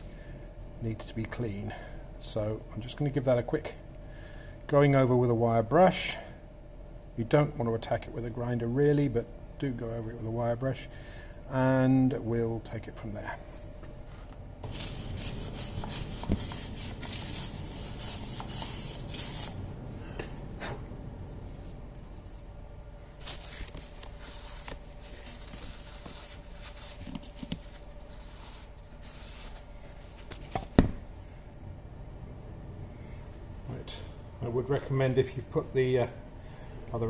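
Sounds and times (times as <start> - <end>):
wire brush scrubbing metal: 14.6 - 19.6.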